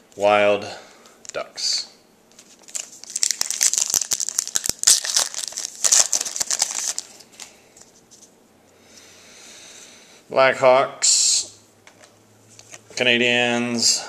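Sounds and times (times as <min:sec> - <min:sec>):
foil wrapper crinkling and tearing: 0:02.4 - 0:07.5.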